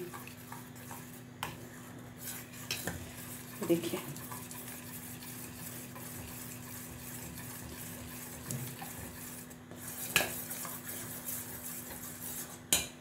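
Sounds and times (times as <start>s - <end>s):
spoon scraping in a pan: 0.0s - 13.0s.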